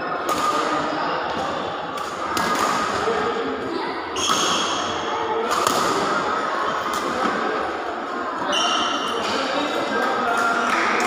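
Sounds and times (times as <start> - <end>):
racket striking shuttlecock: 5.4 - 6.1.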